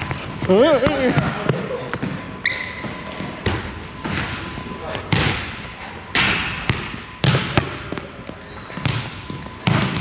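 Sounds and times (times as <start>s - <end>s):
high squeak: 8.4s - 9.0s.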